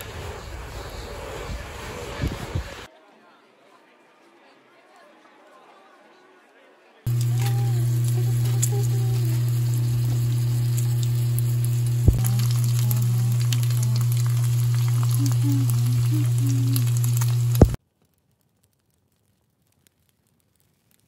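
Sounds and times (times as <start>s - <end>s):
food sizzling in oil: 7.1s - 17.8s
steady low hum: 7.1s - 17.8s
spitting oil crackles: 7.1s - 21.0s.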